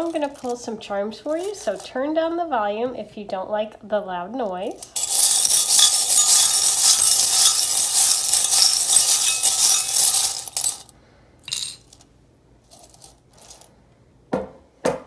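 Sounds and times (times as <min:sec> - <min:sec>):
metal charms rattling in a bowl: 0:00.0 - 0:02.0, 0:04.7 - 0:10.9, 0:11.5 - 0:12.0, 0:12.7 - 0:13.7.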